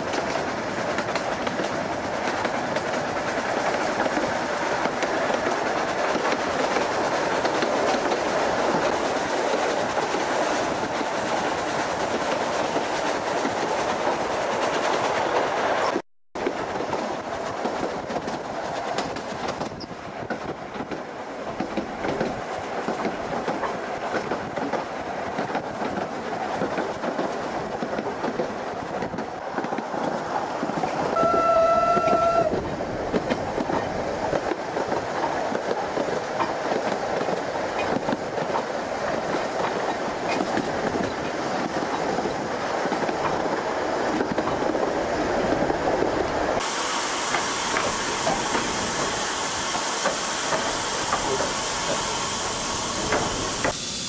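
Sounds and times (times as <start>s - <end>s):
train wheels clattering on rails: 0.0s - 53.8s
steam whistle: 31.1s - 32.6s
steady hiss: 46.6s - 54.0s.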